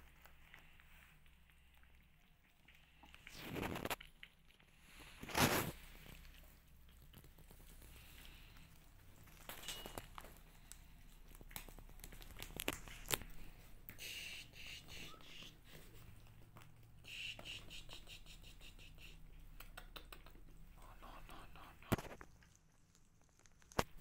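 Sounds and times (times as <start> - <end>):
kittens scratching denim: 5.0 - 16.6.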